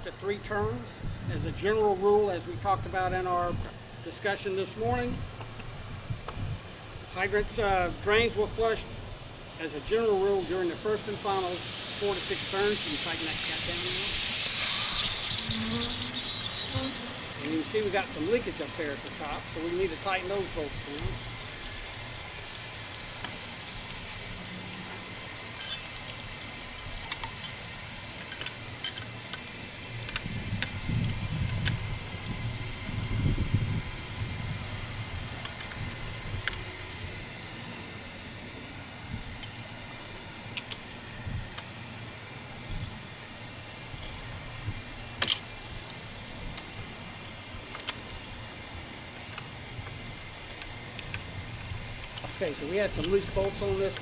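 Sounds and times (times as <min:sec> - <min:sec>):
wrench clinking on metal bolts: 0:25.5 - 0:26.0, 0:28.2 - 0:29.2.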